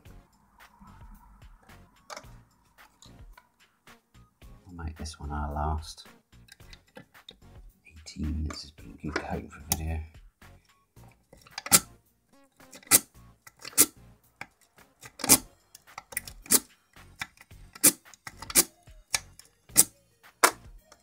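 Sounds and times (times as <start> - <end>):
lock pick clicking: 11.4 - 11.9, 12.7 - 21.0.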